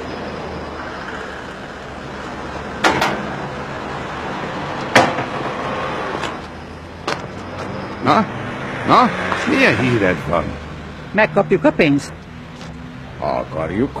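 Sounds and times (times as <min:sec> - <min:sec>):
street traffic: 0:00.0 - 0:14.0
sharp knocks and clicks: 0:02.8 - 0:03.3.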